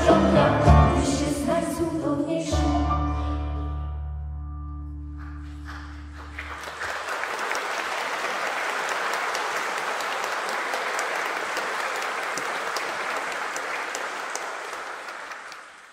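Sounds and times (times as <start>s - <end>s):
audience applauding: 5.1s - 15.9s.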